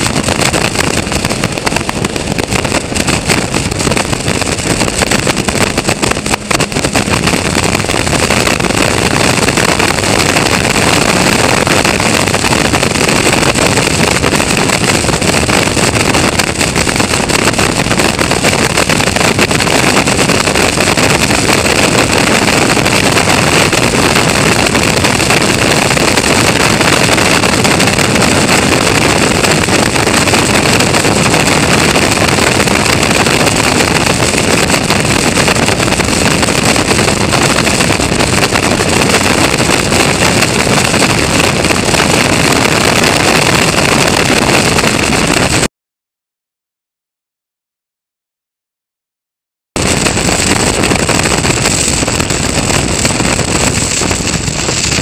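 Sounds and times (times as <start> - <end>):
race car engine running hard: 0.0 - 25.0
wind rush on microphone: 0.0 - 45.7, 49.7 - 55.0.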